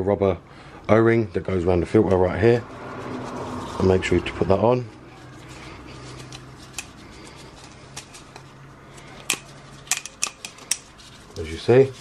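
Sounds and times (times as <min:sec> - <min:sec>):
handling clicks and rustles: 0:05.1 - 0:12.0.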